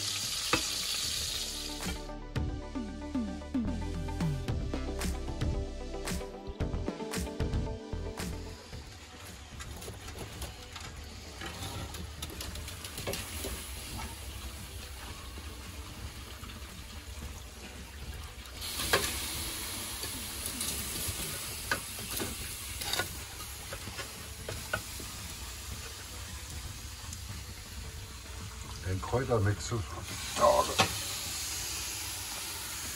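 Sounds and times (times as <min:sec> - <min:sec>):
wood fire crackling and popping: 0:08.8 - 0:29.0.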